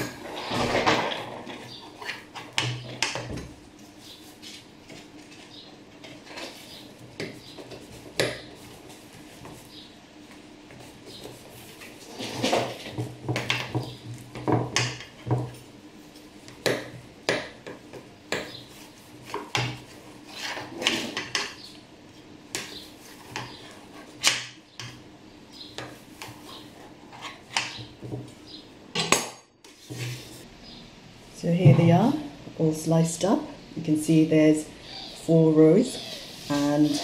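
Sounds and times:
blade scraping metal tray: 0:35.1 - 0:37.0.

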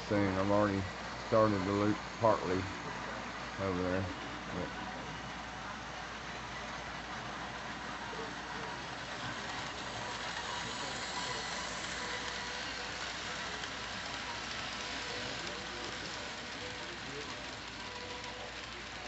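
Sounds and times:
faint motor whine: 0:00.0 - 0:19.0
model train wheels rattling: 0:07.9 - 0:19.0.

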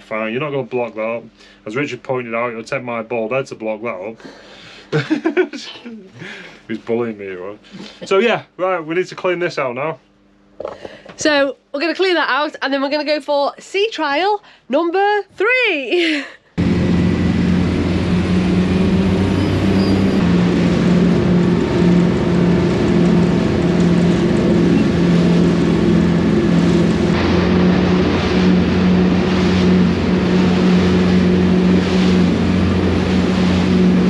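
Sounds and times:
boat engines droning: 0:16.6 - 0:34.0
water rushing along hull: 0:16.6 - 0:34.0.

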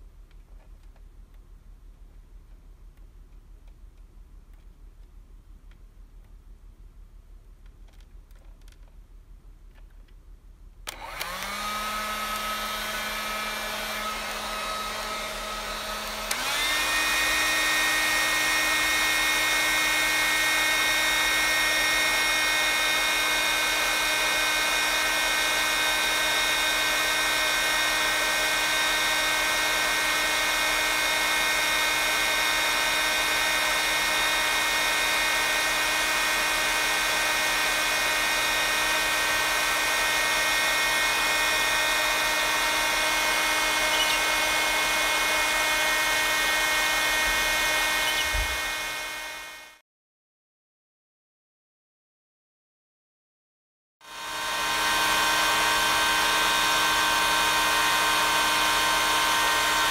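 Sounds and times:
hair dryer blowing: 0:10.9 - 0:49.8, 0:54.0 - 0:59.9.

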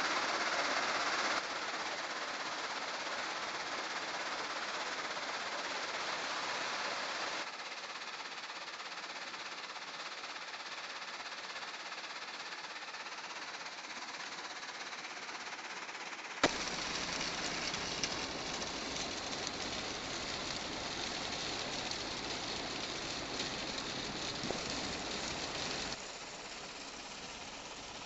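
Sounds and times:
rinsing screen hiss and rattle: 0:00.0 - 0:28.0.

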